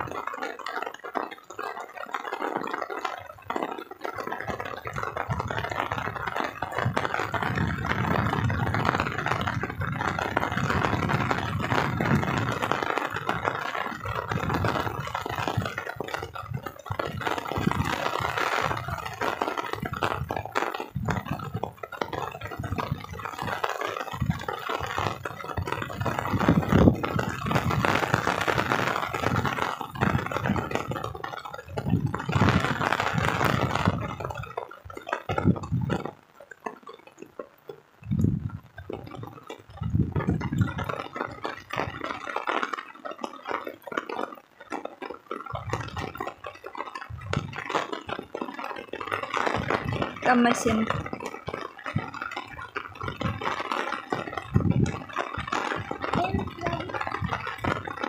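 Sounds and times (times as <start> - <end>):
heavy rain falling: 0.0 - 58.0
low rumbling on microphone: 6.8 - 36.1, 38.0 - 41.9, 47.1 - 47.6, 54.4 - 57.8.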